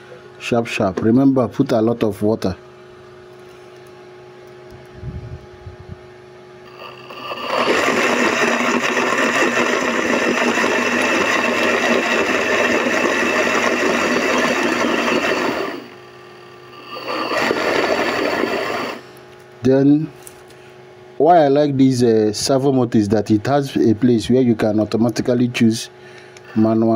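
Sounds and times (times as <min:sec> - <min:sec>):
blender motor running: 0:06.6 - 0:19.2, 0:26.5 - 0:26.9.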